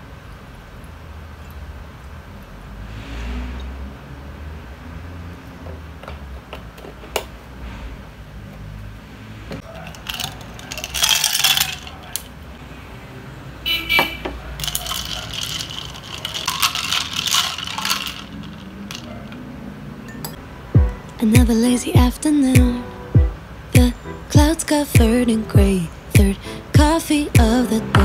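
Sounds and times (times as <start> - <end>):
ice cubes clinking against glass: 9.6 - 12.2, 14.6 - 19.1
metal spoon stirring ice: 9.6 - 12.2, 14.6 - 19.1
ringing glass clink: 20.1 - 20.4.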